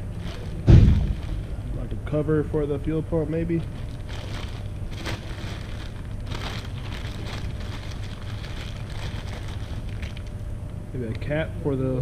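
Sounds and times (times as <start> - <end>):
plastic packaging crinkling: 0.0 - 1.9, 2.9 - 11.2
low rumble: 0.0 - 2.6.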